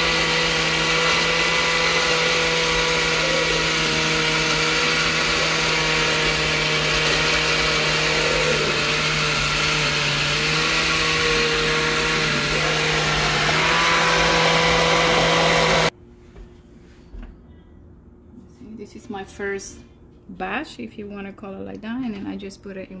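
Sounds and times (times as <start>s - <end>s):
blender motor running: 0.0s - 15.9s.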